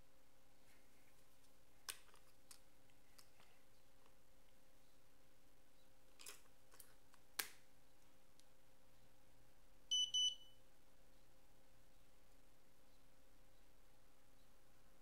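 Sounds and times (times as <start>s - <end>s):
short high beeps: 9.9s - 10.6s.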